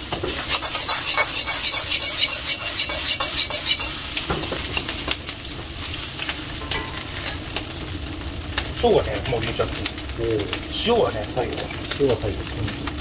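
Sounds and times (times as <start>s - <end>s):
metal ladle scraping wok: 0.0s - 5.2s
rice sizzling in a wok: 0.0s - 13.0s
ladle clinking on wok: 0.3s - 5.2s.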